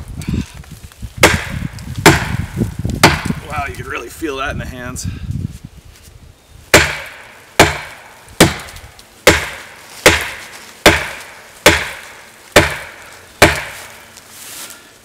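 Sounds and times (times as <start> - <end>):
axe handle knocking on tree trunk: 3.0 - 3.4.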